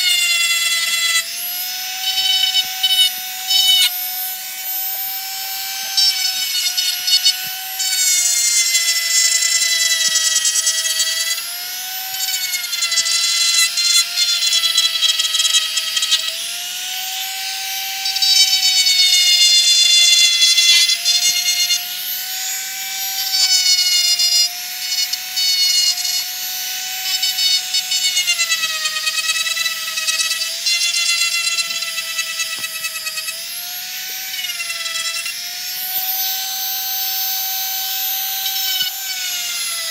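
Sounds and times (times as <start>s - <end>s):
rotary tool grinding: 0.0s - 39.9s.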